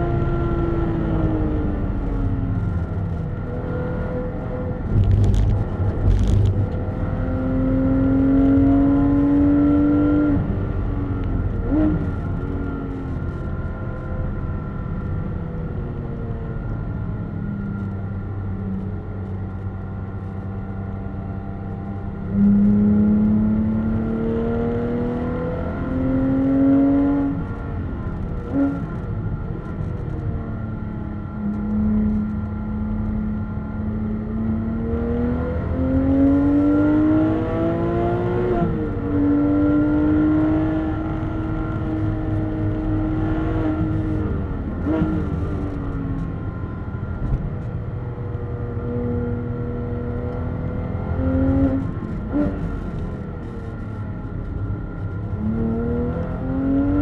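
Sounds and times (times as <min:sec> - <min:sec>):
car engine revving: 0:33.9 - 0:57.0.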